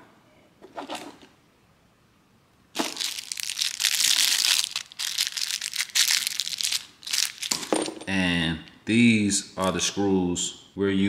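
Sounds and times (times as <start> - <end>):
packaging crinkling: 2.8 - 7.9.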